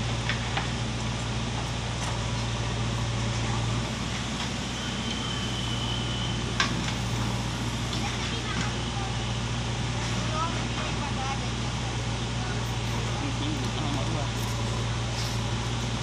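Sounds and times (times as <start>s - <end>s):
diesel engine running: 0.0s - 16.0s.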